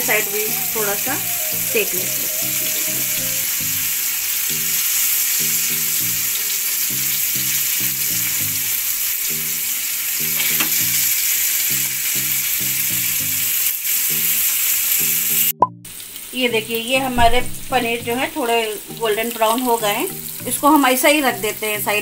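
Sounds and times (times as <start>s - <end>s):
cheese sizzling in a frying pan: 0.0s - 17.1s, 17.9s - 22.0s
metal tongs tapping a pan: 10.2s - 10.9s.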